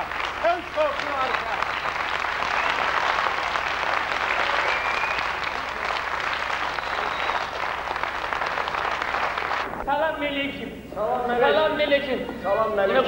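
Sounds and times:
audience applauding: 0:00.0 - 0:09.7.

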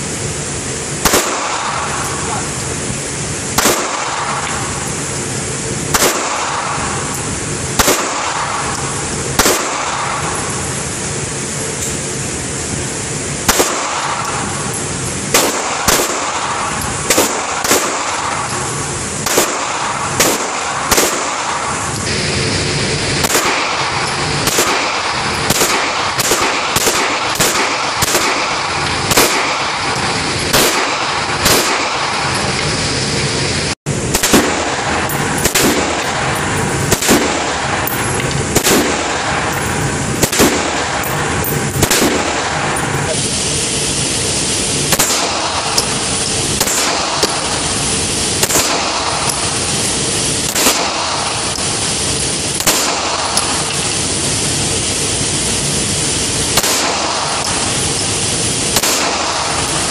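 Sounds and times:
background hiss: 0:00.0 - 0:59.9
gunshots: 0:01.0 - 0:02.6, 0:03.4 - 0:05.0, 0:05.8 - 0:10.9, 0:13.4 - 0:22.3, 0:23.1 - 0:32.6, 0:34.0 - 0:43.3, 0:44.7 - 0:53.7, 0:56.4 - 0:58.1, 0:58.7 - 0:59.9.

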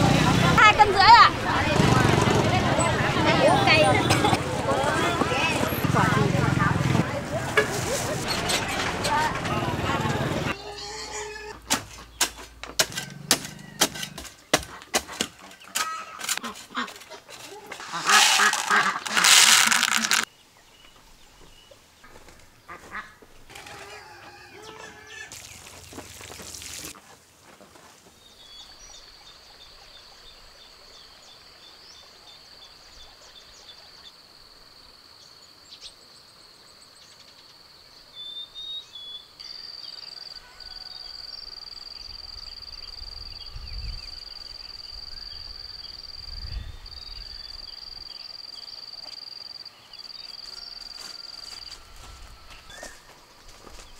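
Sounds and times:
plastic packet crinkling: 0:17.8 - 0:20.3.

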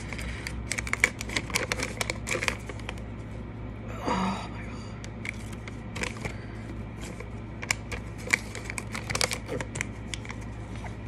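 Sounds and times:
paper receipt crinkling and tearing: 0:00.0 - 0:03.0, 0:07.0 - 0:10.9.

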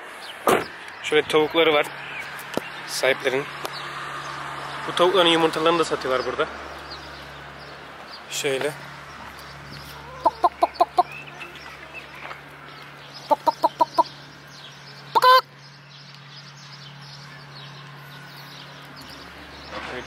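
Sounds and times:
hens clucking: 0:09.2 - 0:11.7, 0:13.3 - 0:14.2, 0:15.1 - 0:15.4
hen squawk: 0:10.0 - 0:11.2, 0:13.3 - 0:14.1, 0:15.1 - 0:15.5.

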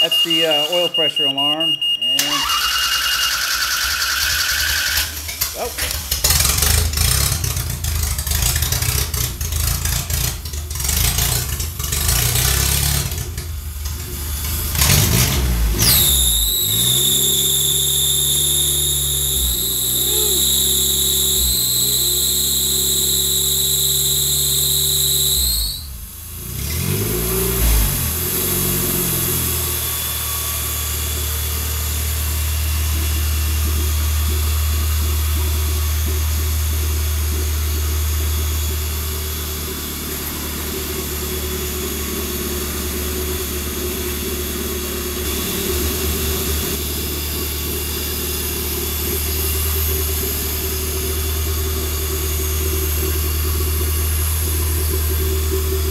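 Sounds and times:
high-pitched tone: 0:00.0 - 0:02.7
car engine idling: 0:03.4 - 0:15.8, 0:25.9 - 0:55.9.

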